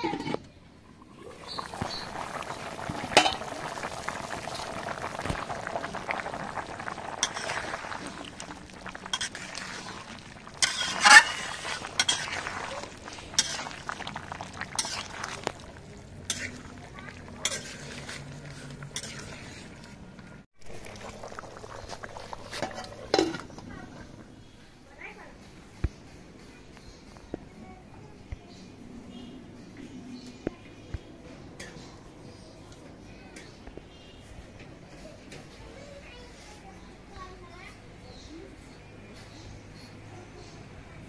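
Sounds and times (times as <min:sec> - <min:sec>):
curry bubbling in a pan: 0:00.9 - 0:24.6
metal spatula scraping a pan: 0:10.6 - 0:15.5, 0:16.2 - 0:16.7, 0:17.3 - 0:20.0.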